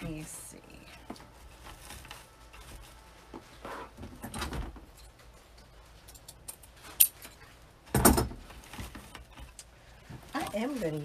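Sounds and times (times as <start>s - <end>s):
ribbon rustling: 0.9s - 4.2s, 8.4s - 11.0s.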